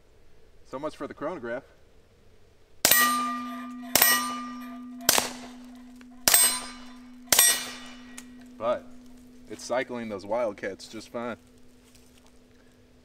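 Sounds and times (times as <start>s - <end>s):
metallic ring: 2.8s - 13.0s
suppressed pistol shots: 2.9s - 8.3s.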